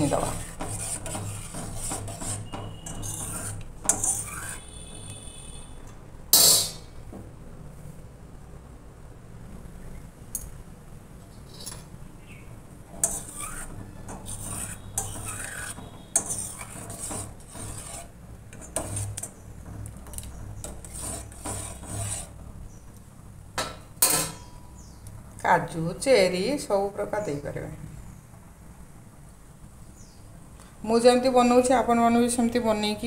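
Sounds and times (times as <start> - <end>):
metal spoon scraping a pan: 0.0 - 5.6, 6.4 - 6.9, 12.9 - 22.5, 24.0 - 24.6.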